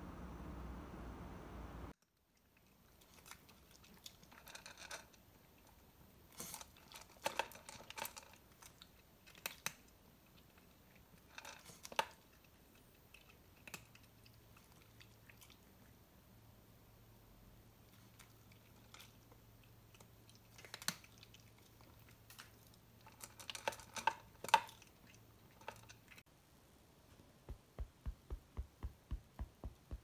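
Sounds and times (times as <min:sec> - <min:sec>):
cat crunching dry kibble: 0:02.5 - 0:15.6, 0:17.9 - 0:26.2.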